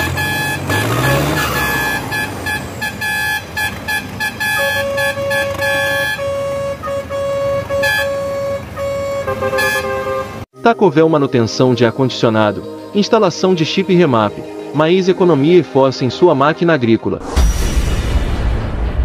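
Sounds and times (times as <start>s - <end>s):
engine noise: 0.0s - 10.4s
high-pitched vehicle horn honking: 0.0s - 10.5s
low-pitched vehicle horn honking: 0.0s - 10.5s.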